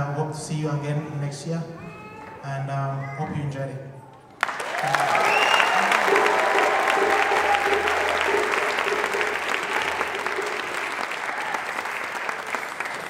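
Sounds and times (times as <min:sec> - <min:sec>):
audience applauding: 0:04.4 - 0:13.0.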